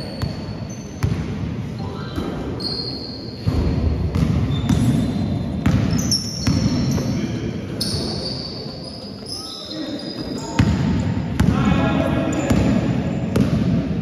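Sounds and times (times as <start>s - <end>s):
basketball bouncing on wooden court: 1.0s - 1.4s, 3.4s - 7.2s, 10.5s - 14.0s
trainers squeaking on floor: 1.8s - 3.4s, 4.5s - 10.6s.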